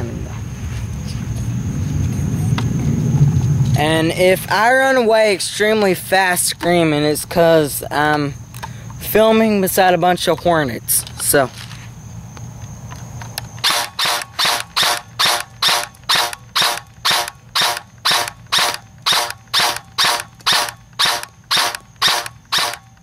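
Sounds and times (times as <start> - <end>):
airsoft rifle single shots: 13.6 - 22.9.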